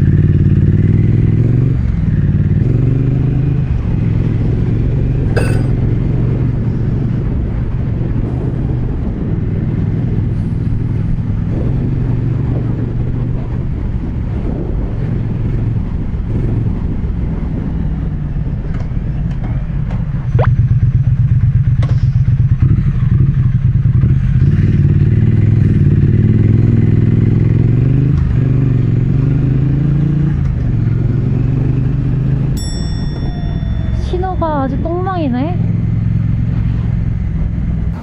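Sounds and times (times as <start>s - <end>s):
motorcycle engine: 0.0s - 8.1s, 20.5s - 38.0s.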